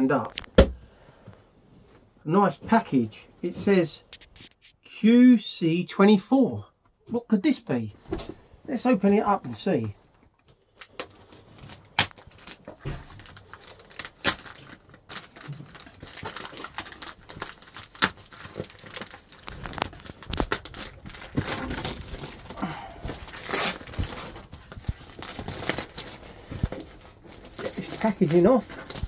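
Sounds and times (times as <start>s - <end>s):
plastic wrap tearing and crinkling: 10.7s - 29.0s
knife slitting plastic wrap: 23.3s - 24.3s.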